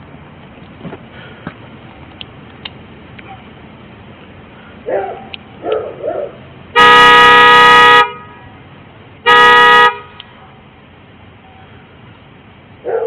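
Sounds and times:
vehicle horn blasts: 6.7 - 8.6, 9.2 - 10.2.

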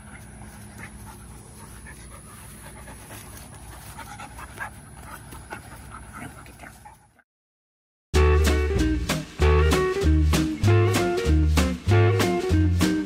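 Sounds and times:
dog panting: 0.0 - 7.2.

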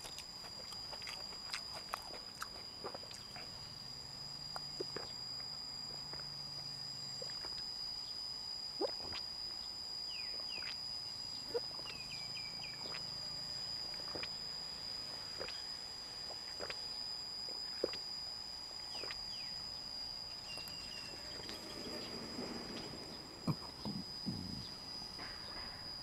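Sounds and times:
high insect drone: 0.0 - 26.0
person swallowing water: 23.5 - 24.8.

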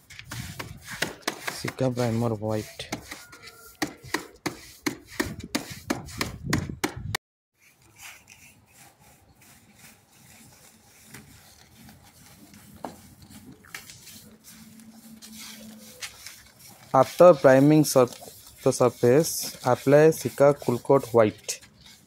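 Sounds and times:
short scraping strokes: 7.6 - 22.0.

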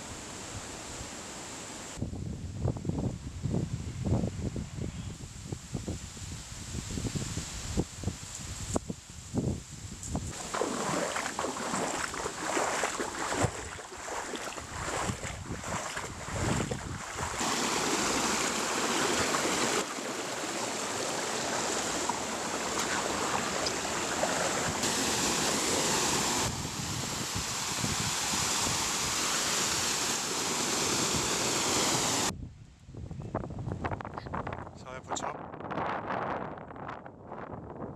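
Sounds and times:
water rushing over rocks: 10.3 - 32.3.

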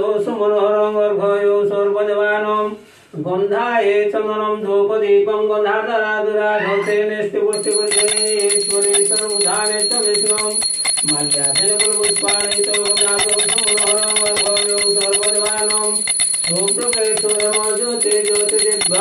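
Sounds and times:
bell rung rapidly: 7.6 - 19.0.

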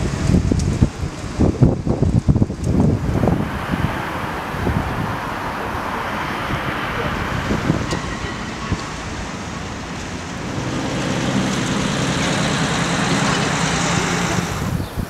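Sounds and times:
wind rumbling on microphone: 0.0 - 15.0
car driving past: 2.8 - 14.8.

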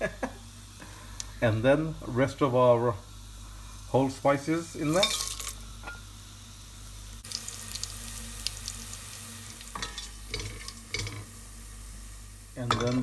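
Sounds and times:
spices sizzling in hot oil: 0.1 - 13.0
spoon stirring in pot: 9.7 - 11.3.

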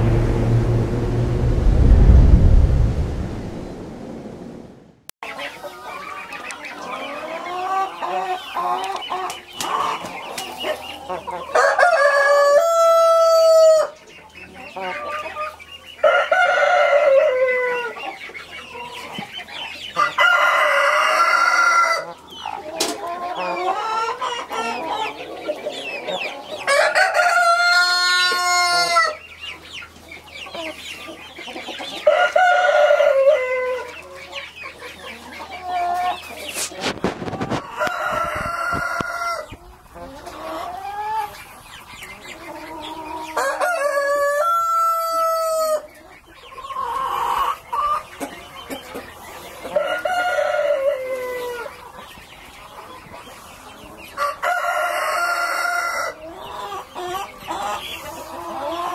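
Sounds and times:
roosters crowing: 11.4 - 14.0, 16.0 - 17.9, 26.6 - 29.2, 32.0 - 34.0, 37.4 - 39.6, 42.8 - 45.9, 49.7 - 51.7, 54.1 - 56.9
hens clucking: 29.9 - 58.9.

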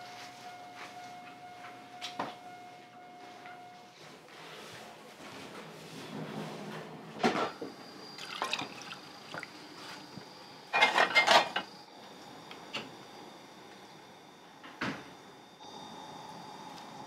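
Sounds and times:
crockery and utensils clinking: 10.7 - 11.7.

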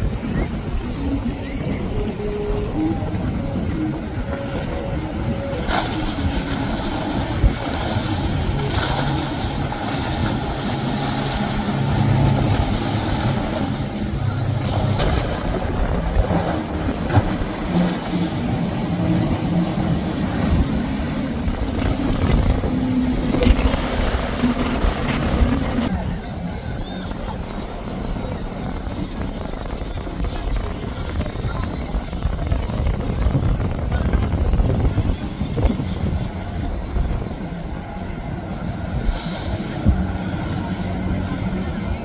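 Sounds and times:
motorboat engines droning: 0.0 - 42.0
hulls splashing through water: 5.4 - 28.9.

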